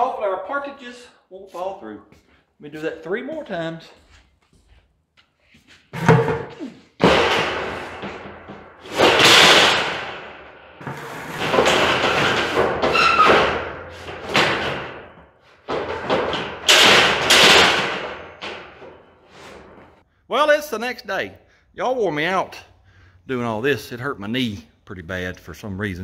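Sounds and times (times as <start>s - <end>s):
steel parts banging: 6.0s - 20.0s.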